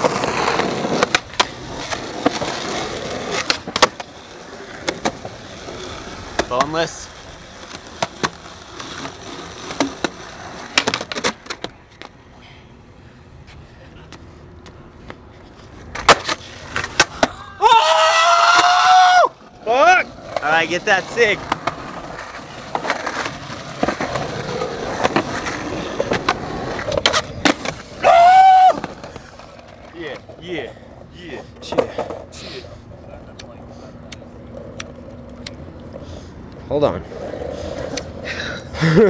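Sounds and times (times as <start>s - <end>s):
skateboard clacks on concrete: 0.0s - 4.2s, 7.5s - 12.2s, 15.9s - 17.4s, 20.2s - 27.9s
skateboard wheels rolling: 0.0s - 39.0s.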